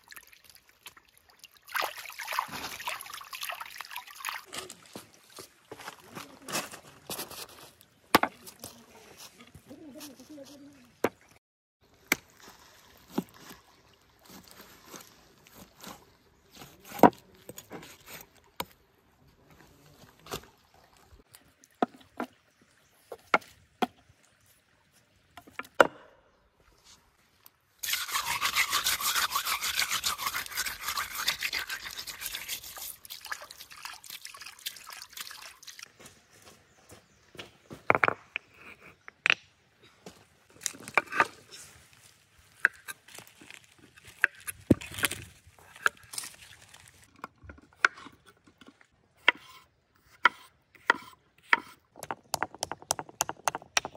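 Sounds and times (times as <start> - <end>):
cleaver scraping meat: 27.8 - 33.1.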